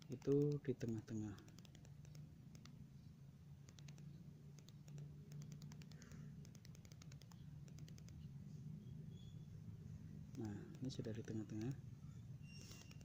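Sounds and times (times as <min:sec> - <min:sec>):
faint scattered clicks: 0:00.0 - 0:02.8, 0:03.6 - 0:08.3, 0:10.3 - 0:11.8
low steady hum: 0:00.0 - 0:13.0.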